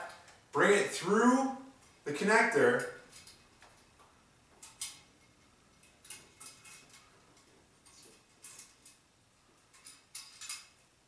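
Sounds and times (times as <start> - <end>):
light metallic clicks and rattles: 2.7 - 11.0.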